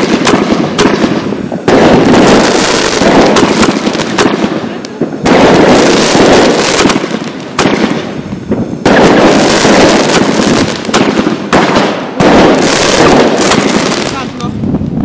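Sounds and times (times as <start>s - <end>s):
fireworks crackling: 0.0s - 15.0s
fireworks shots and bursts: 0.0s - 15.0s.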